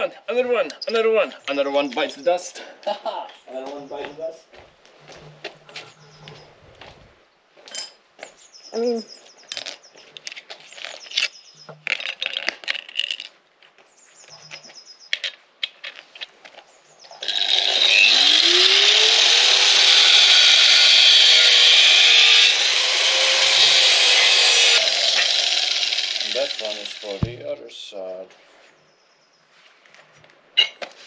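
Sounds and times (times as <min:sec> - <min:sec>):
angle grinder grinding steel: 0:17.2 - 0:27.4.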